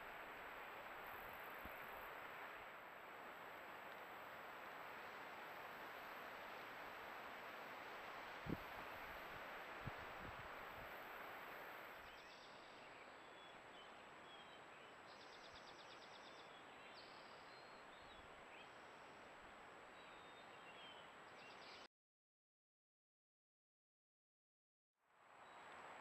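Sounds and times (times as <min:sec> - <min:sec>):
steady hiss: 0:00.0 - 0:17.4.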